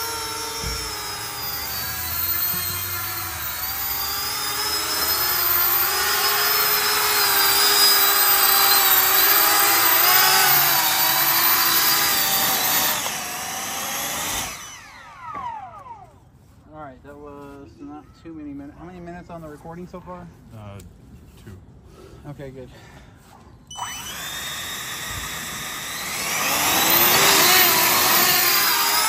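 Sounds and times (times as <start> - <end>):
drone ducted fans whining: 0.0 - 16.6, 23.6 - 29.0.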